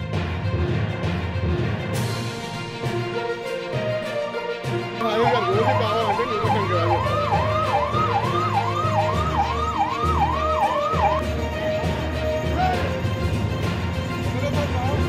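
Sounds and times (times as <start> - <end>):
background music with bass line: 0.0 - 15.0
siren sweeping up and down: 5.0 - 11.4.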